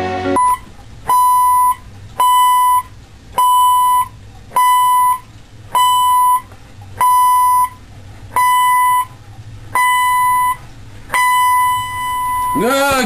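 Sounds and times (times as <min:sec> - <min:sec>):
song playing: 0:00.0 - 0:00.4, 0:12.6 - 0:13.0
alarm clock beeping: 0:00.4 - 0:05.2, 0:05.8 - 0:07.8, 0:08.4 - 0:09.1, 0:09.8 - 0:13.0.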